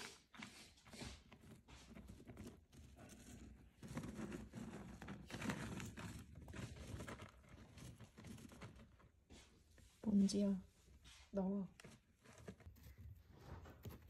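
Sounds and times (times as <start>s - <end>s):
hamster digging in plastic bag: 0.0s - 10.3s
plastic crinkling: 0.4s - 9.2s.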